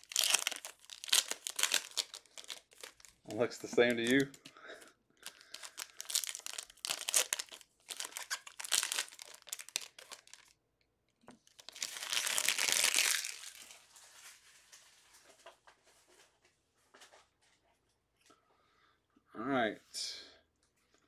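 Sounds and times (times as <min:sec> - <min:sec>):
plastic wrappers crinkling and tearing: 0:00.0 - 0:04.5, 0:05.2 - 0:10.5, 0:11.4 - 0:15.2.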